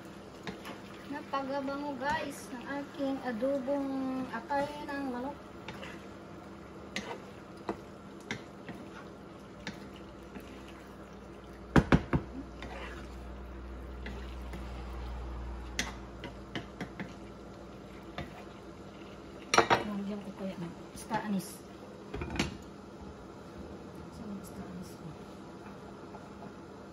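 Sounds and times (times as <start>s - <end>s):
spatula stirring: 0.0s - 11.7s, 12.3s - 19.9s
sauce bubbling in frying pan: 0.0s - 19.6s
spatula knocking on pan: 11.7s - 12.3s.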